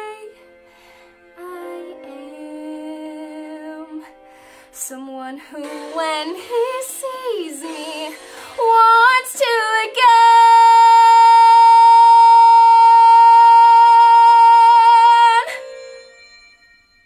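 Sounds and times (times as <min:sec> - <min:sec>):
girl belting a song: 0:05.5 - 0:15.7.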